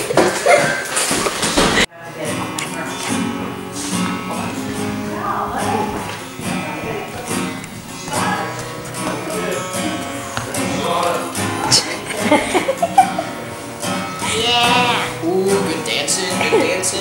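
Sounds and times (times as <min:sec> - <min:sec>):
acoustic guitar strumming: 0:00.0 - 0:17.0
girl singing: 0:14.2 - 0:17.0.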